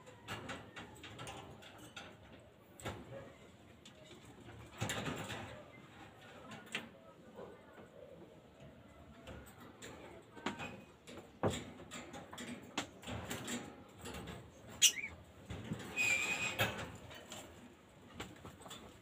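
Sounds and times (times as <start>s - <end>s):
bird cage knocks and scrapes: 4.7s - 5.6s, 10.4s - 14.8s, 15.4s - 17.5s.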